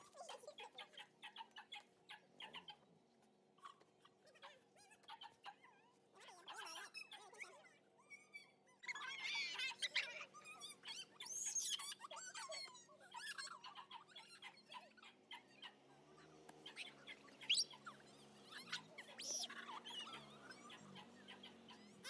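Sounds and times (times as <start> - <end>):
dog whining squeaks: 8.1 - 14.5.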